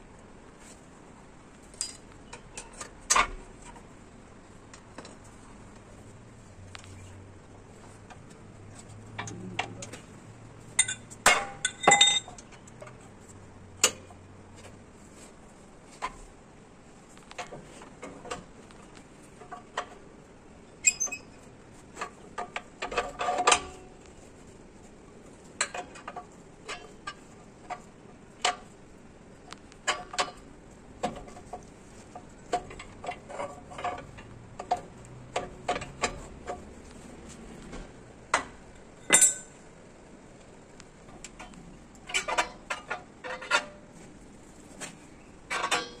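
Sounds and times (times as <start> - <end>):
metallic clicks and clinks: 10.8 - 12.8, 39.0 - 39.6.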